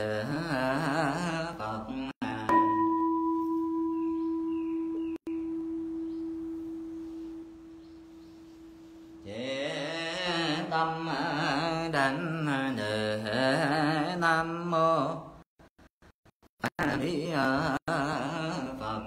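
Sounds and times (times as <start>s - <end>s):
bowl bell ringing: 2.5s - 9.3s
people chanting: 9.2s - 14.1s.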